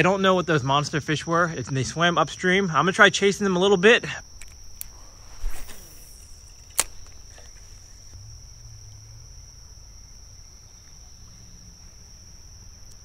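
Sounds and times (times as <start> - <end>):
high insect drone: 0.0 - 13.0
fishing reel click: 4.4 - 7.8.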